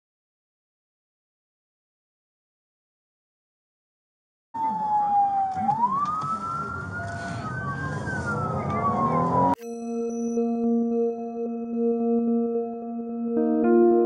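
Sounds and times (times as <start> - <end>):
car road rumble: 4.6 - 9.6
siren wailing: 4.6 - 9.6.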